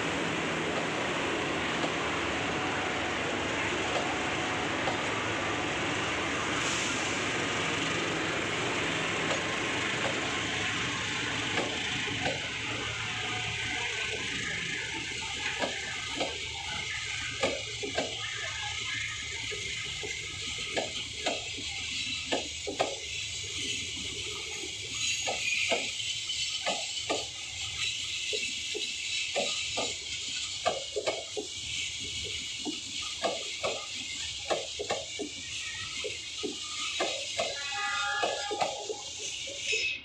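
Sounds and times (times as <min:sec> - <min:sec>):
train coaches rolling past: 0:00.0 - 0:40.0
wheels clacking over rail joints: 0:07.6 - 0:39.6.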